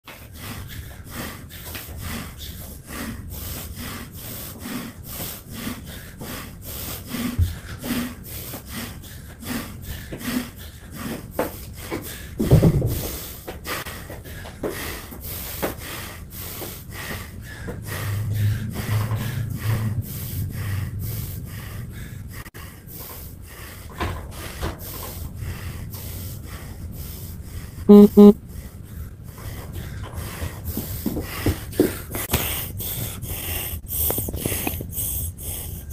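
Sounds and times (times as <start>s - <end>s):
man breathing hard: 0.1s - 35.9s
interval timer beeps: 27.9s - 28.4s.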